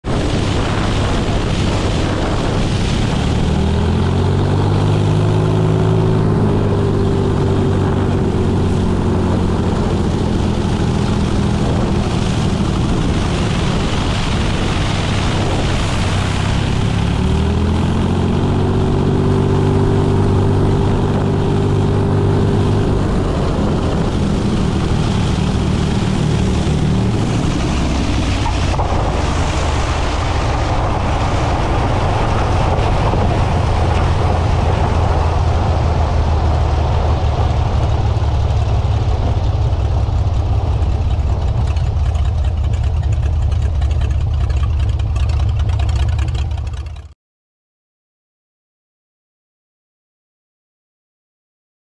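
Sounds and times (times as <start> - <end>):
wind on microphone: 0.0 - 46.2
airplane engine and propeller droning: 0.0 - 47.1.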